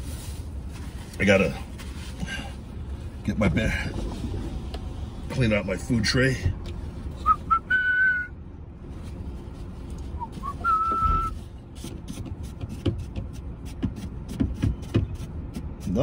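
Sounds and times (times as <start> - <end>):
man whistling: 7.2 - 8.4, 10.2 - 11.4.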